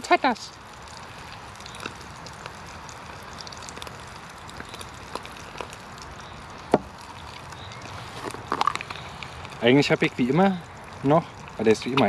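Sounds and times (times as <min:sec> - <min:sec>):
wood fire crackling and popping: 0:00.0 - 0:12.0.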